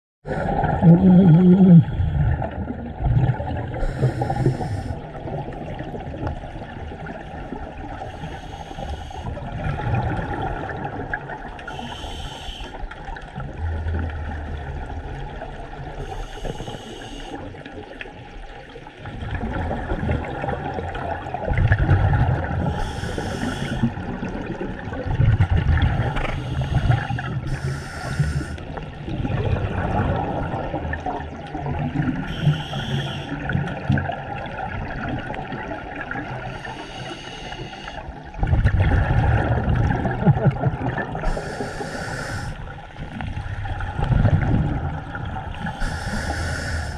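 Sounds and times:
exhaled bubbles rumbling: 0.3s - 12.1s, 12.7s - 36.8s, 37.9s - 46.9s
regulator inhalation hiss: 3.8s - 5.0s, 8.2s - 9.3s, 11.7s - 12.8s, 16.0s - 17.4s, 22.7s - 23.9s, 26.4s - 28.6s, 32.3s - 33.4s, 36.5s - 38.0s, 41.2s - 42.6s, 45.6s - 46.9s.

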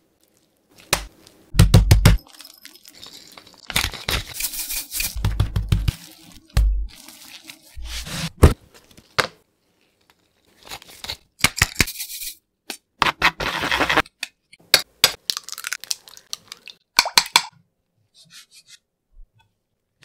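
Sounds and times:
salt shaker rattling: 2.2s - 6.3s
cling film crinkling: 5.9s - 7.8s.

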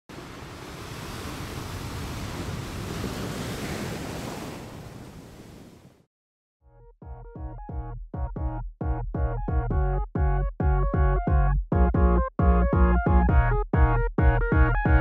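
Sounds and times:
electronic music: 6.8s - 15.0s.

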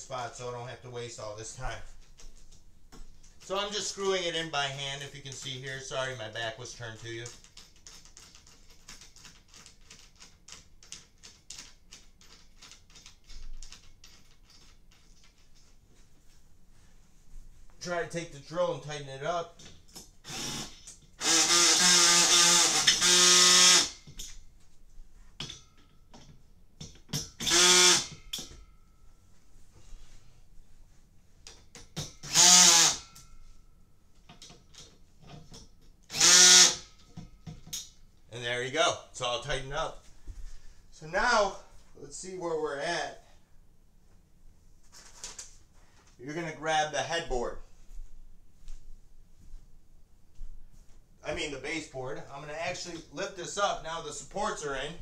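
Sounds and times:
handling clicks and knocks: 7.0s - 16.1s, 34.1s - 36.0s, 37.0s - 38.1s
cordless drill tightening bolt: 20.2s - 24.2s, 27.2s - 28.5s, 32.0s - 33.2s, 36.1s - 37.0s.

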